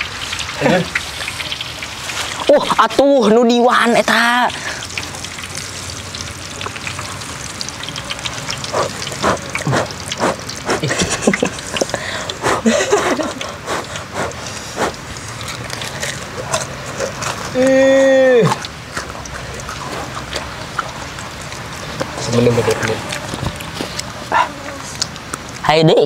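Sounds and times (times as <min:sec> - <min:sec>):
hot oil sizzling in a pan: 0:00.0 - 0:25.7
sharp crunches and clicks: 0:18.5 - 0:25.7.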